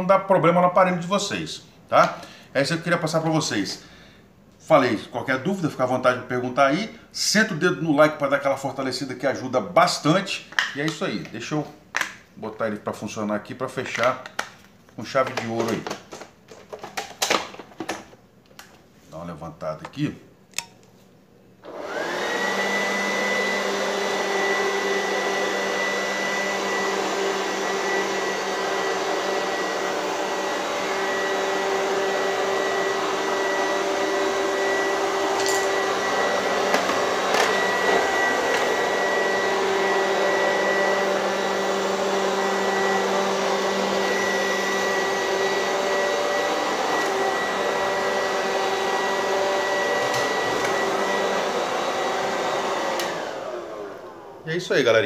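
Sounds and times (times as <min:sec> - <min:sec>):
robot vacuum motor whine: 0:21.7 - 0:54.3.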